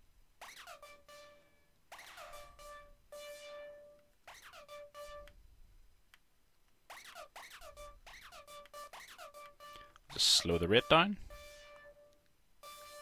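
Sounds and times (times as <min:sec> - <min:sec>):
synthesizer falling pitch notes: 0:00.4 - 0:05.3, 0:07.5 - 0:13.0.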